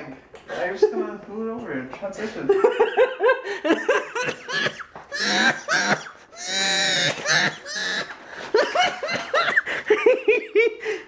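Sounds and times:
men laughing: 0:02.5 - 0:11.0.

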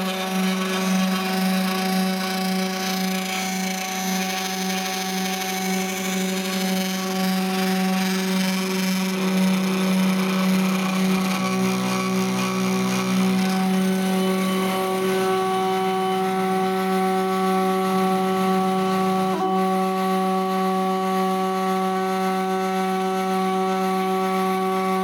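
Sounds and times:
motors whining: 0:00.0 - 0:19.7
lower motor tone: 0:00.0 - 0:25.0.

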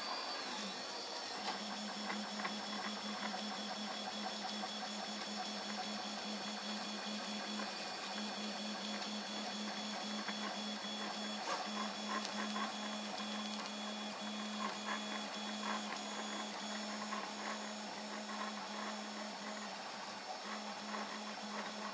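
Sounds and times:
steady high hum: 0:04.6 - 0:21.9.

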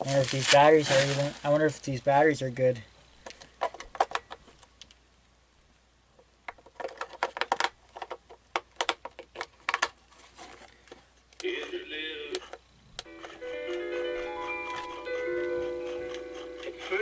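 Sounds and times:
batteries and plastic clicking: 0:03.2 - 0:05.0, 0:06.2 - 0:14.0.

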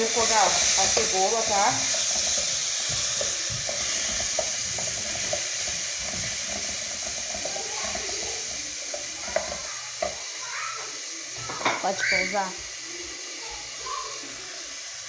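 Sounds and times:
onion sizzling in oil: 0:00.0 - 0:15.0
wooden spoon knocking pot: 0:00.2 - 0:08.0, 0:08.8 - 0:10.3.

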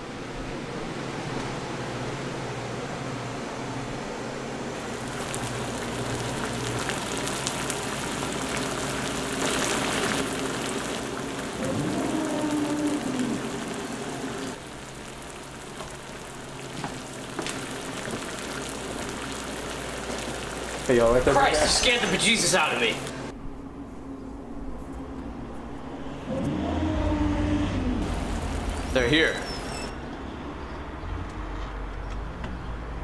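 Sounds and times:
exhaust hood fan humming: 0:00.0 - 0:29.5
stove crackling sizzle: 0:04.8 - 0:23.3, 0:28.0 - 0:29.8.

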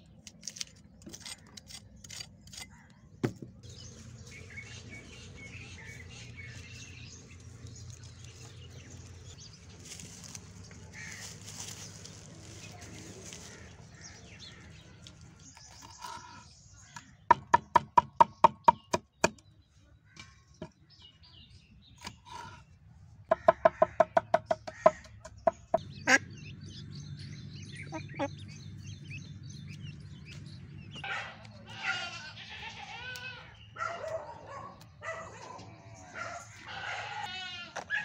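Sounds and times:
poultry calls: 0:03.8 - 0:15.2, 0:23.3 - 0:35.3, 0:36.0 - 0:38.0.

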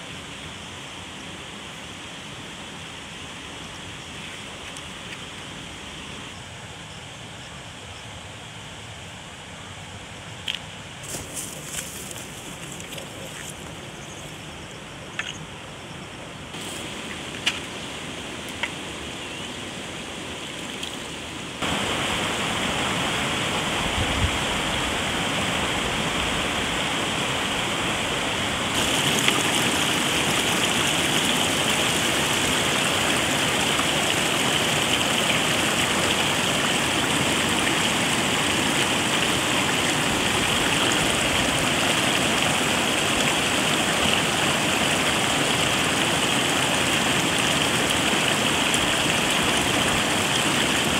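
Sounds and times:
stream rushing over boulders: 0:10.5 - 0:50.9.

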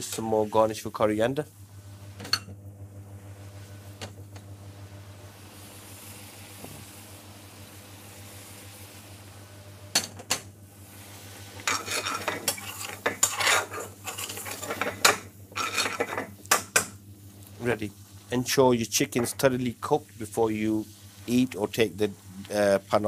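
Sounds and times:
metal spoon scraping frying pan: 0:11.6 - 0:16.3.

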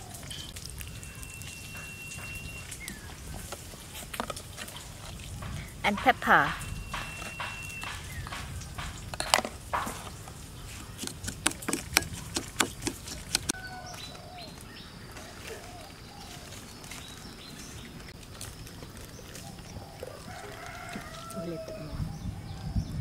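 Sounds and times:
outdoor background noise: 0:00.0 - 0:23.0
small birds chirping: 0:00.0 - 0:23.0
sharp clicks and taps: 0:05.4 - 0:10.0, 0:10.8 - 0:13.6.

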